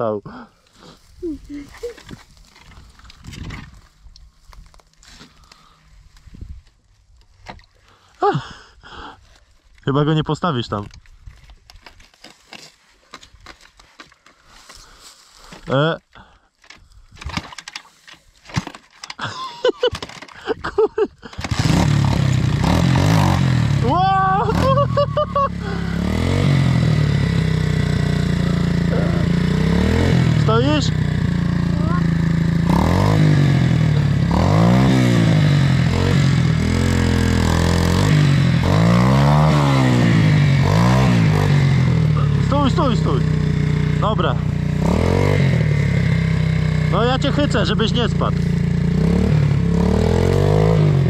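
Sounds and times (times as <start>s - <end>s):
motorbike engine starting: 16.8s - 51.0s
person grunting with effort: 23.7s - 26.6s, 28.3s - 30.4s.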